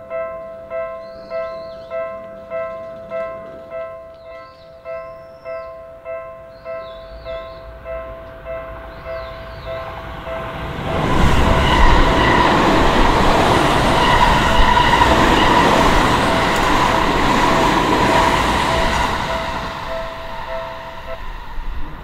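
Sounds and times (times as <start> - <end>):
level crossing bell ringing: 0.0 - 21.4
train wheel and track noise: 7.1 - 22.0.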